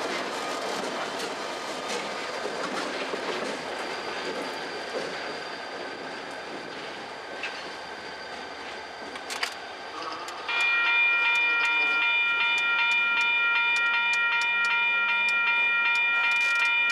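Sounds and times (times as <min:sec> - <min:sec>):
diesel locomotives running: 0:00.0 - 0:16.9
railroad crossing warning bell: 0:09.9 - 0:16.9.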